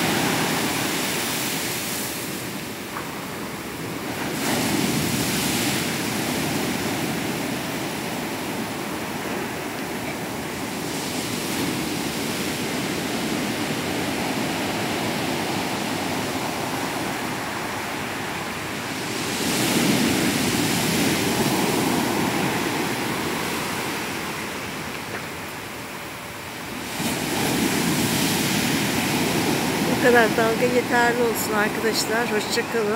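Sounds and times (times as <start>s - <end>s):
waves breaking on beach: 0.0s - 32.9s.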